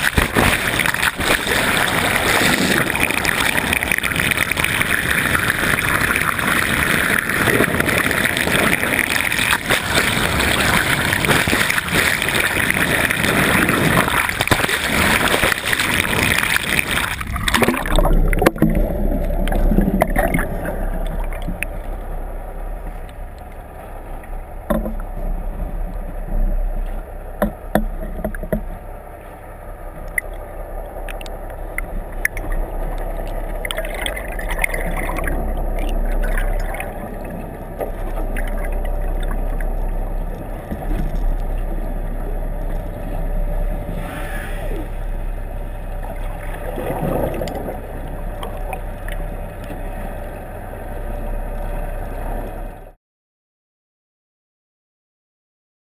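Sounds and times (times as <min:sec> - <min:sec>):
boat engine hum underwater: 0:00.0 - 0:53.0
rushing water underwater: 0:00.0 - 0:53.0
faint clicks: 0:30.0 - 0:35.3.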